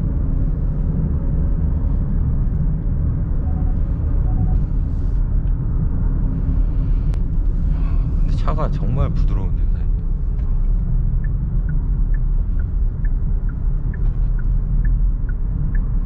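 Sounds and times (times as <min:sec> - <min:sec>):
car cabin road rumble: 0:00.0 - 0:16.0.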